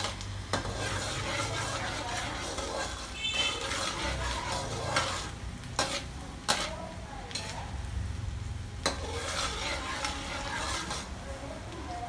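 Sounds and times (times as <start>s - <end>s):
garlic sizzling in hot oil: 0.0s - 12.0s.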